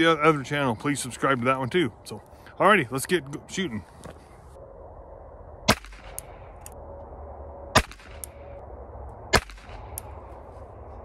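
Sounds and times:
revolver gunshots: 5.6s - 6.2s, 7.7s - 8.3s, 9.3s - 9.9s.

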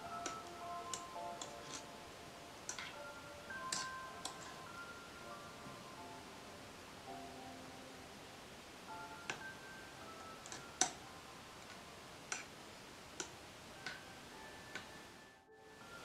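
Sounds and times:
metal spoon clinking on steel pan: 2.7s - 4.9s.

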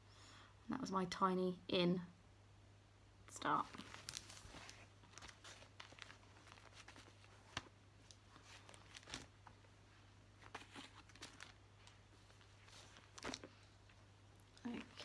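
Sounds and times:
low electrical hum: 0.0s - 15.0s
fabric rustling and soft clicks: 3.4s - 15.0s.

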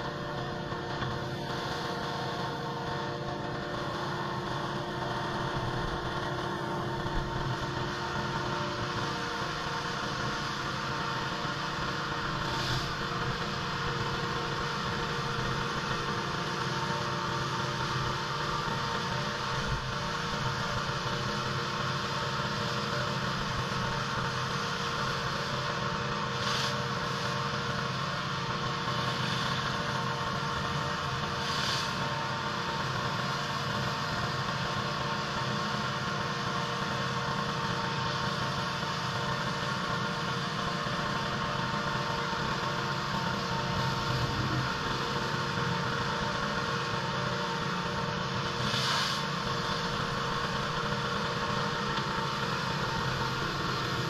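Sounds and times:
pressure washer engine hum: 0.0s - 54.0s
water spray hissing: 26.4s - 27.3s, 48.5s - 54.0s.

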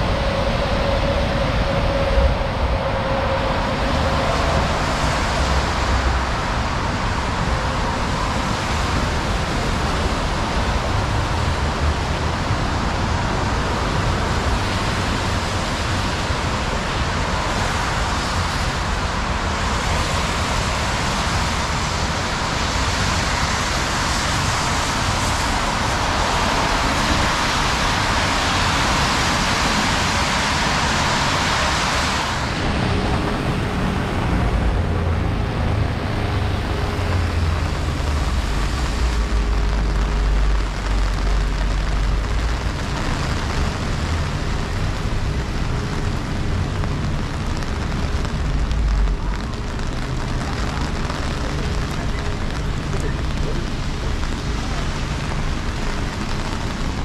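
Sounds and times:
traffic on wet streets: 0.0s - 57.0s
rain hissing: 12.5s - 57.0s.

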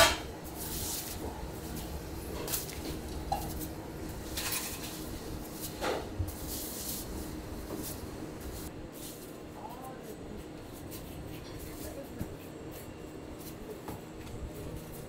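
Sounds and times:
low background hum: 0.0s - 15.0s
dough slapping and swishing: 0.4s - 9.3s.

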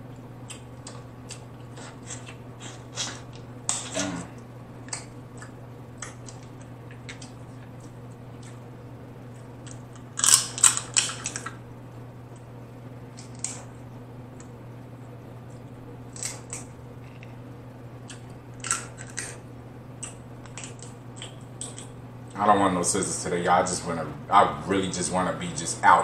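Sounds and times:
steady low hum: 0.0s - 26.0s
crab shells cracking: 4.8s - 8.7s, 9.3s - 11.6s, 13.1s - 13.7s, 16.1s - 17.3s, 18.0s - 19.4s, 20.0s - 22.0s.

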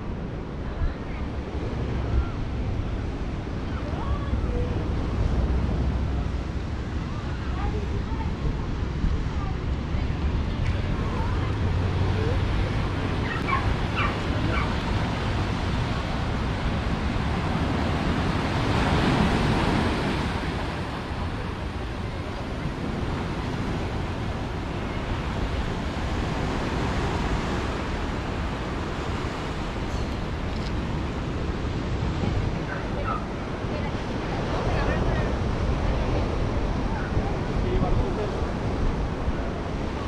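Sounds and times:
ocean surf washing ashore: 0.0s - 40.0s.

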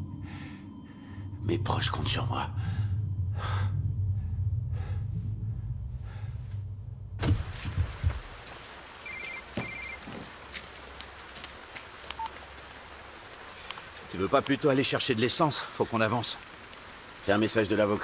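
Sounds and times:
steady rain: 7.2s - 18.0s
short phone beeps: 9.1s - 10.0s.

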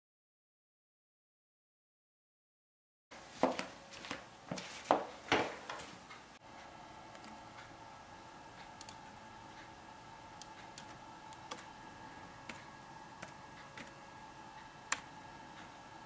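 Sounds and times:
low hum with faint whine: 3.2s - 16.0s.

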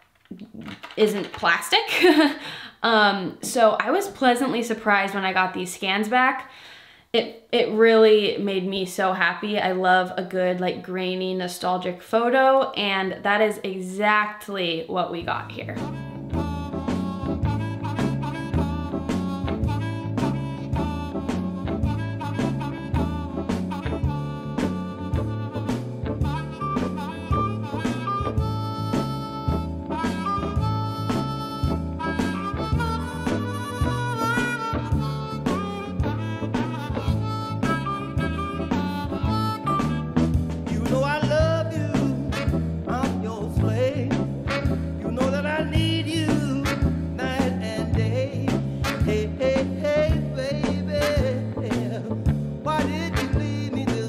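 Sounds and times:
jazz music: 15.2s - 54.0s.

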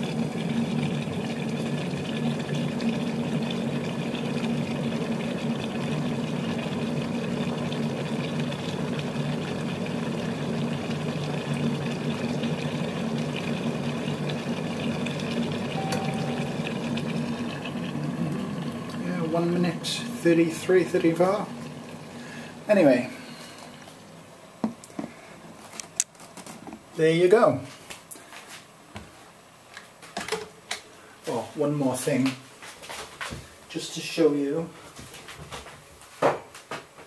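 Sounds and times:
electric kettle hissing: 0.0s - 25.6s.

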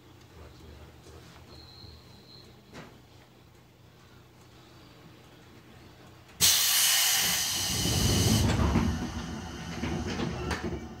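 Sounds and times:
compressed air hiss: 6.4s - 8.5s
low rumbling air release: 6.4s - 11.0s.

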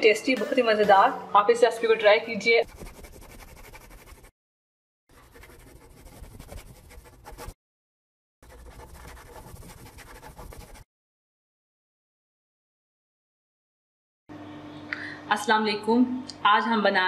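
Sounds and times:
marker scribbling: 2.6s - 4.3s, 5.1s - 7.6s, 8.4s - 10.9s.

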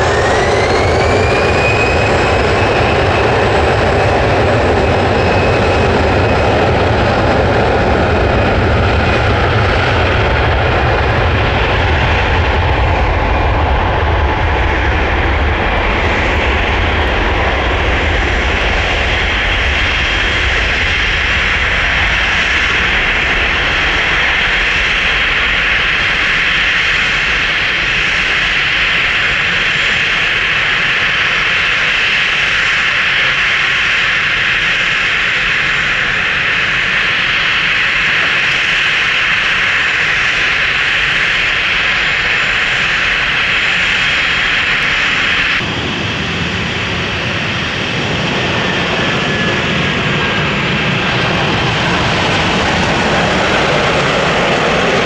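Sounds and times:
jet engines roaring with whine: 0.0s - 55.0s.

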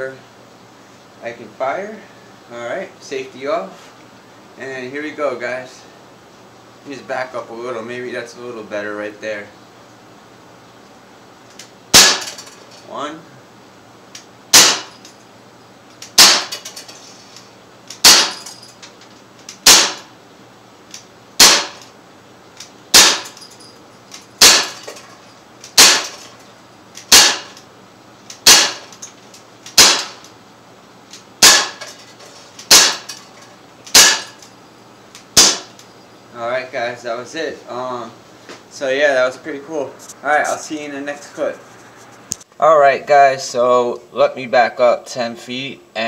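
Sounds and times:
air pistol shots: 11.9s - 12.4s, 14.5s - 15.1s, 16.0s - 16.6s, 17.9s - 18.5s, 19.5s - 20.1s, 21.4s - 21.9s, 22.9s - 23.4s, 24.4s - 24.9s, 25.6s - 26.2s, 27.0s - 27.6s, 28.3s - 29.0s, 29.6s - 30.3s, 31.4s - 31.8s, 32.6s - 33.1s, 33.9s - 34.4s, 35.3s - 35.8s.

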